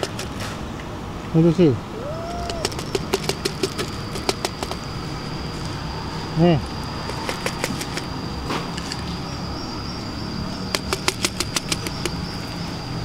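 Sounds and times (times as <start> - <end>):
low hum: 0.6 - 13.0
kibble clicking onto concrete: 2.4 - 4.8, 7.0 - 8.1, 10.7 - 12.2.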